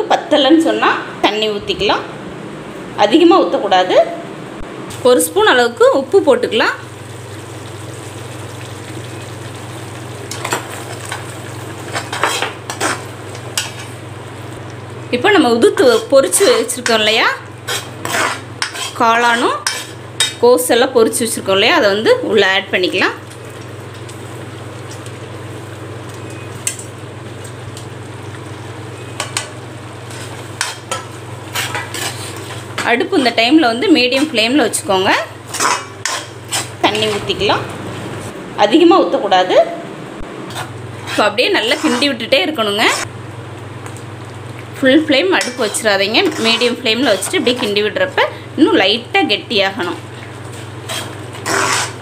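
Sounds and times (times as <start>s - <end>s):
steady sizzle: 4.9s - 38.4s, 40.2s - 52.0s
gravy sizzling in a pan: 5.9s - 20.4s
metal ladle scraping a pan: 11.9s - 13.0s, 17.7s - 20.0s, 30.1s - 33.4s, 35.5s - 37.2s, 40.5s - 43.1s, 45.4s - 47.7s, 50.8s - 52.0s
ladle scraping metal pan: 40.5s - 43.1s, 45.4s - 47.7s, 50.8s - 52.0s.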